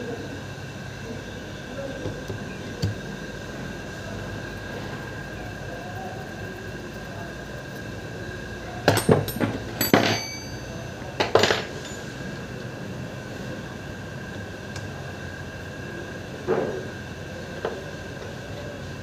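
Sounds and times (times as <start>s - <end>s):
metal parts clinking: 8.9s - 12.0s.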